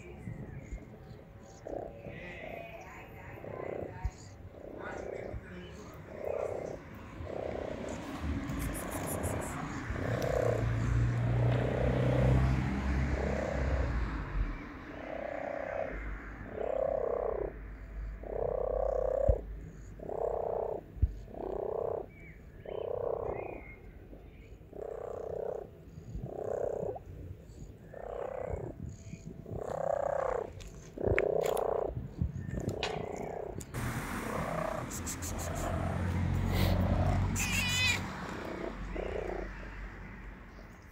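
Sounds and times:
kitten meowing: 0:37.4 - 0:38.0.

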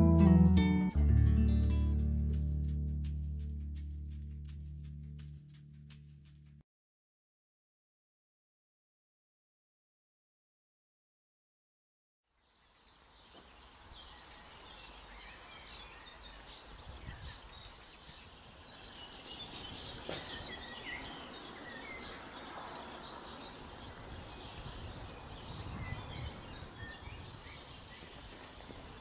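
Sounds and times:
small birds chirping: 0:12.4 - 0:29.0.

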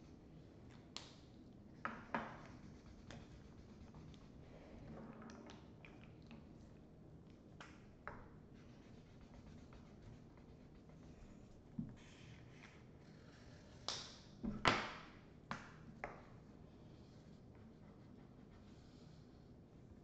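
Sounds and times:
markers scratching on paper: 0:02.4 - 0:04.4, 0:08.6 - 0:13.6.

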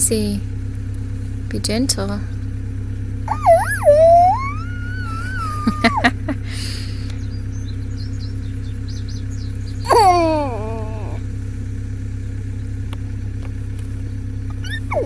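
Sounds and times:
steady low hum: 0:00.0 - 0:15.0
baby squealing: 0:03.3 - 0:06.2, 0:09.9 - 0:11.2, 0:14.5 - 0:15.0.

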